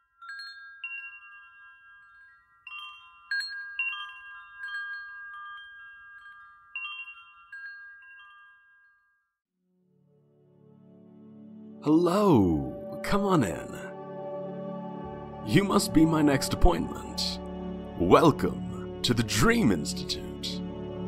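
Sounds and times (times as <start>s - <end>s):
wind chimes tinkling: 0.0s - 9.5s.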